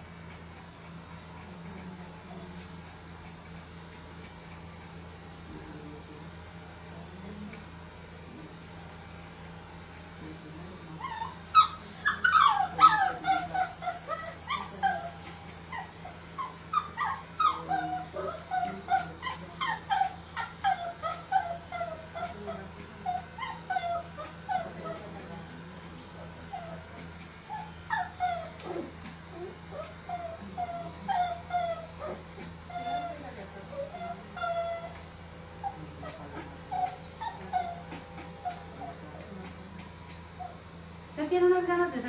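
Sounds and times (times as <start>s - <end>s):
puppy whining and yelping: 10.8s - 25.1s, 26.5s - 33.2s, 33.8s - 39.0s.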